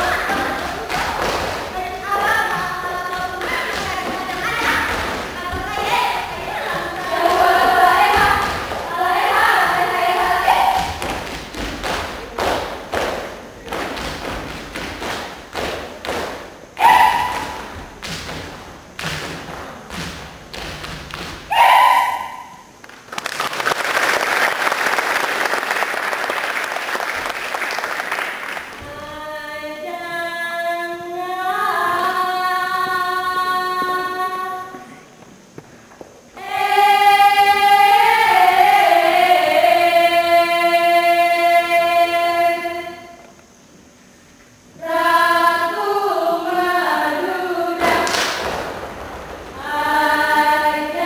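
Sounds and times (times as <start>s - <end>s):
group singing a chant in unison: 0.0s - 11.6s, 36.4s - 43.2s, 44.8s - 48.6s, 49.5s - 51.0s
rhythmic hand claps and body slaps: 0.0s - 21.5s, 22.8s - 28.9s, 47.8s - 50.2s
short shouted calls: 10.3s - 10.9s, 16.8s - 17.7s, 21.5s - 22.7s.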